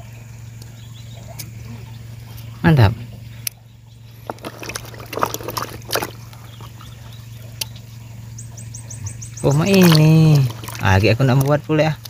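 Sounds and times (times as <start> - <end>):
water splashing in bucket: 4.1 - 7.7, 9.4 - 12.0.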